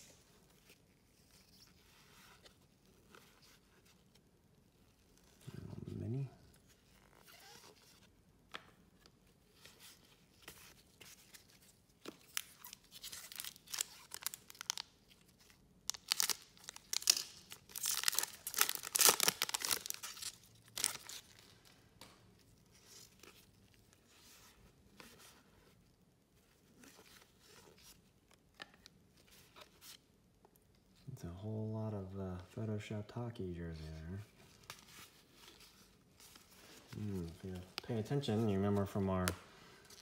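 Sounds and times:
cards rustling: 9.5s - 25.4s, 33.9s - 40.0s
wrapper tearing and crinkling: 12.2s - 21.6s.

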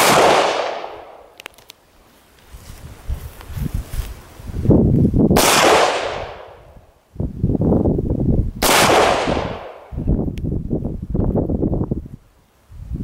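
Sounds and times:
rifle shots with echo: 0.0s - 1.3s, 5.4s - 6.6s, 8.6s - 9.9s.

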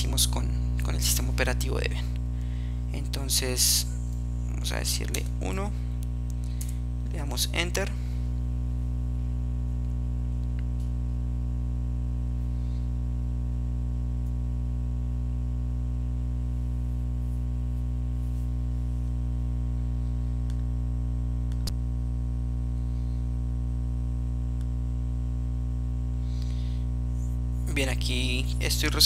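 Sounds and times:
steady electrical hum: 0.0s - 29.0s.

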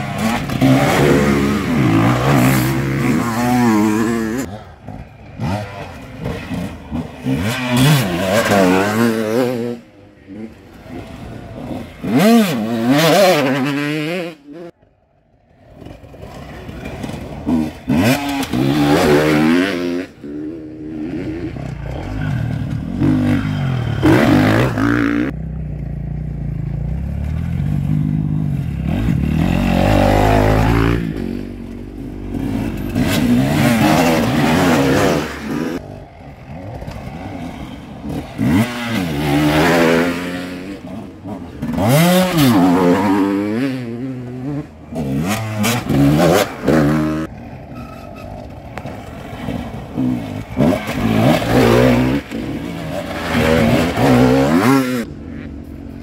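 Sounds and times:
dirt bike engines revving: 0.0s - 56.0s.

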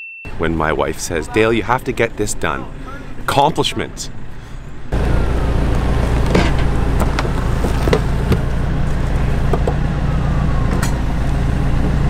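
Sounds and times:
backhoe engine running: 4.2s - 12.0s
knocks and clanks: 6.1s - 8.6s, 9.4s - 9.8s.

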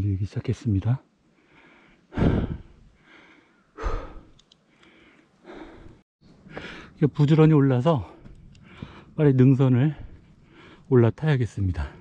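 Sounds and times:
person breathing hard: 1.3s - 7.0s, 8.6s - 9.2s.

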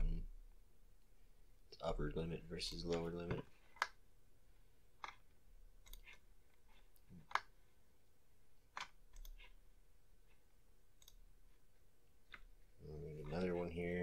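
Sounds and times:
computer mouse clicks: 2.6s - 4.0s, 5.0s - 7.6s, 8.7s - 9.6s, 11.0s - 11.2s.

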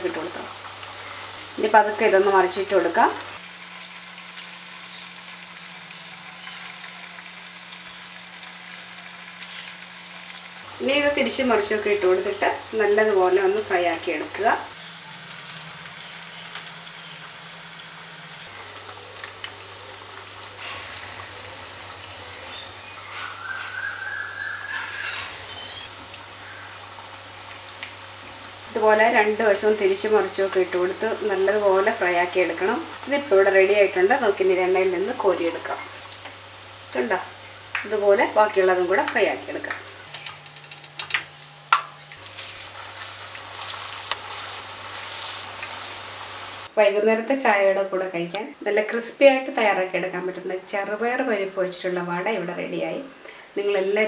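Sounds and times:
food deep-frying in oil: 0.0s - 46.7s
wavering high-pitched call: 14.8s - 18.5s.

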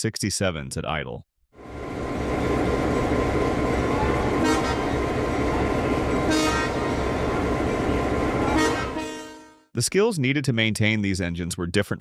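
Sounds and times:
diesel locomotive idling: 1.6s - 9.5s
locomotive horn toots: 3.9s - 7.2s, 8.4s - 9.7s.

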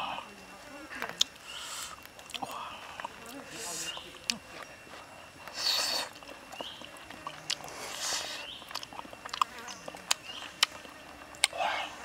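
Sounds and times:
man chewing: 1.2s - 12.0s
wet mouth clicks and smacks: 8.6s - 11.6s.

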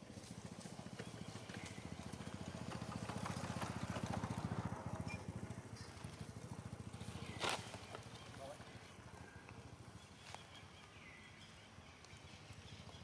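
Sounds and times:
engine running with low pulse: 0.0s - 13.0s
dry leaves crackling: 5.9s - 9.1s.

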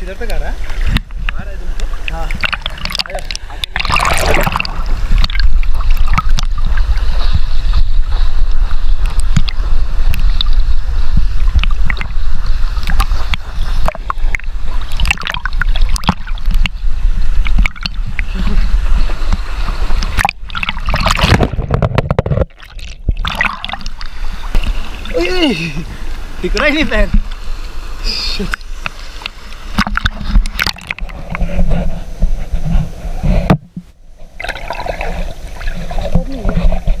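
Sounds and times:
water sloshing and splashing: 0.0s - 37.0s.

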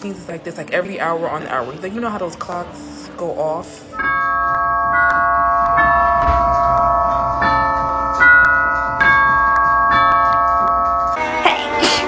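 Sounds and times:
grandfather clock chiming: 3.9s - 11.4s.

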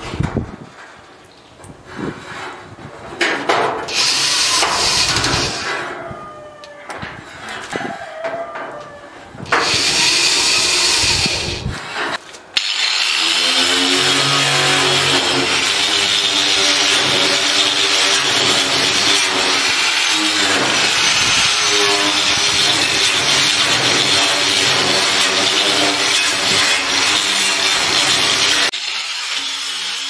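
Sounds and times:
drill boring into sheet steel: 3.9s - 5.7s, 9.5s - 11.7s, 12.6s - 30.0s
angle grinder on sheet metal: 3.9s - 6.0s, 9.4s - 30.0s.

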